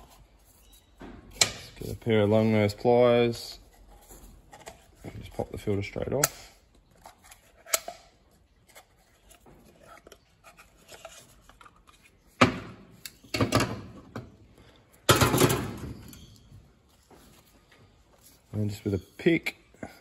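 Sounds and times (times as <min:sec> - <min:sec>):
parts clattering on workbench: 0:15.1 - 0:16.3.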